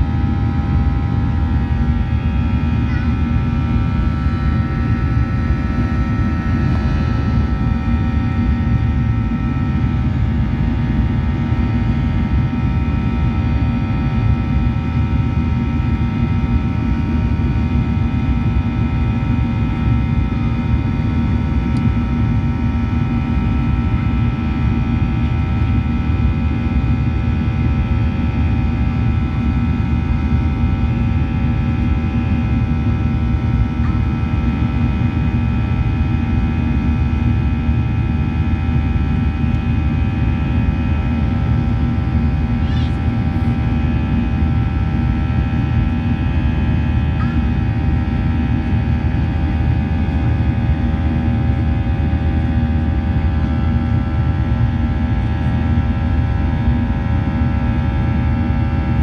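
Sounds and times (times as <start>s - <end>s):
jet engine rumble and whine: 0.0s - 59.0s.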